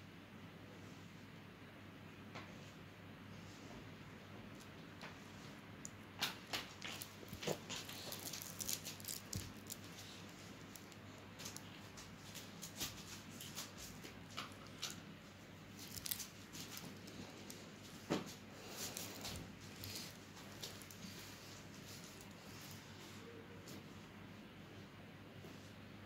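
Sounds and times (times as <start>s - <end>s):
low steady hum: 0.0s - 26.0s
paper clicks and crinkles: 6.2s - 22.9s.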